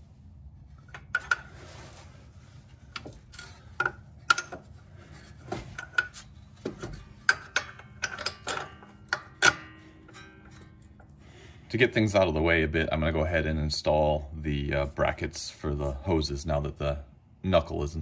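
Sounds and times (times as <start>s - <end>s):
metallic clinks of steel bolts: 5.7s - 11.1s.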